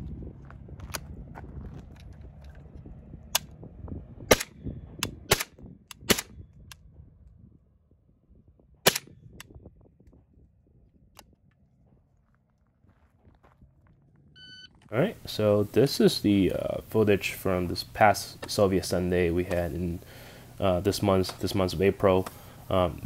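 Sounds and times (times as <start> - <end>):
suppressed rifle gunshots: 4.3 - 6.3, 8.8 - 9.1.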